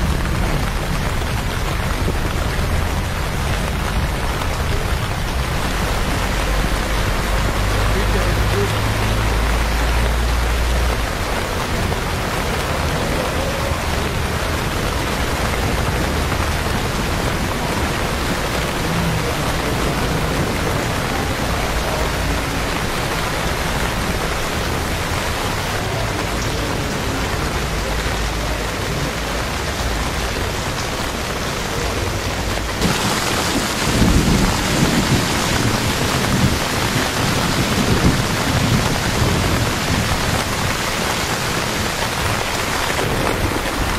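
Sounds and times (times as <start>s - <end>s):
rain splashing on pavement: 0.0s - 43.9s.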